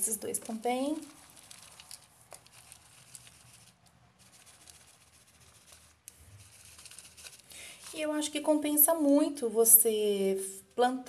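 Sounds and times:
soil pouring onto seeds: 0:00.0 - 0:08.1.

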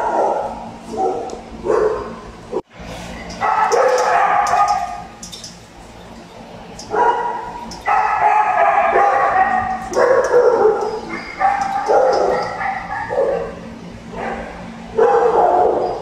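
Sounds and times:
dogs whining yelps: 0:03.4 - 0:05.1, 0:06.9 - 0:13.6, 0:14.2 - 0:16.0.

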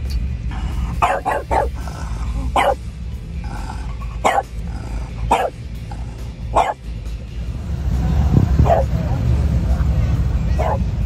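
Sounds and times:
steady low rumble: 0:00.0 - 0:11.0
dog barking: 0:01.0 - 0:01.8, 0:02.6 - 0:02.8, 0:04.2 - 0:04.5, 0:05.3 - 0:05.6, 0:06.5 - 0:06.8, 0:08.6 - 0:09.0, 0:10.5 - 0:10.9.

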